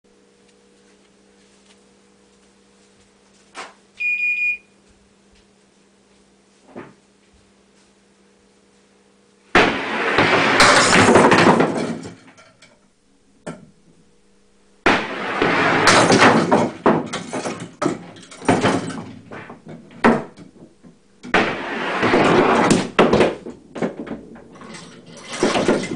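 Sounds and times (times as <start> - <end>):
low steady hum: 0.1 - 25.9
short electronic beep: 4.0 - 4.7
bowling pins clattering: 9.6 - 25.9.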